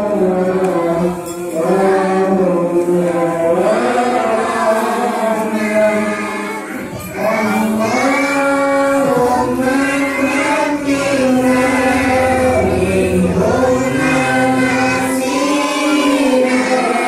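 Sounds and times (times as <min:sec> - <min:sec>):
group of voices chanting: 0:03.5 - 0:17.0.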